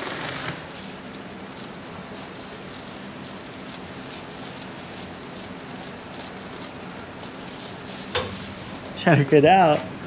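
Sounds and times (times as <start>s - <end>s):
scissors snipping foil sheet: 0.1s - 8.4s.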